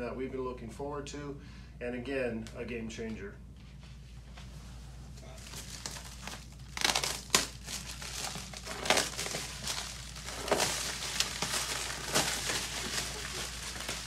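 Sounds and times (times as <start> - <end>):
plastic stretch wrap crinkling: 5.1 - 14.0.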